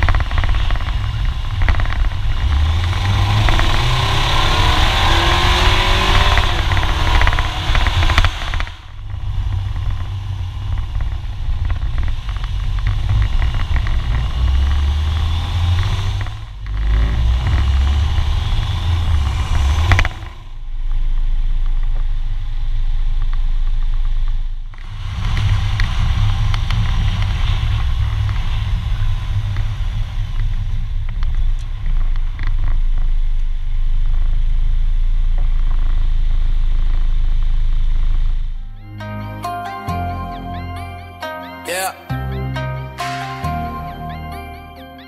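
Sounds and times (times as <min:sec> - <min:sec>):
car wind and road rumble: 0:00.0 - 0:38.9.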